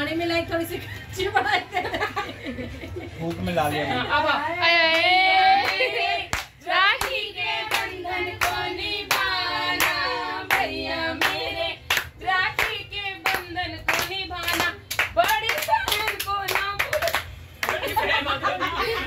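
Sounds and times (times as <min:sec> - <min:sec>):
voices singing: 0:04.6 - 0:14.8
hand clapping on the beat: 0:04.8 - 0:18.0.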